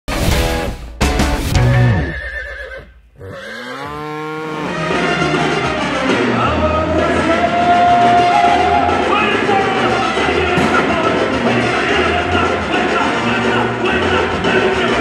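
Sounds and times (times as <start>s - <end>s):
brass band music: 0.1s - 2.2s, 3.5s - 15.0s
loud music: 0.1s - 2.2s, 4.6s - 15.0s
horse whinny: 1.6s - 5.6s
crowd noise: 4.9s - 15.0s
held horn note: 7.3s - 9.2s.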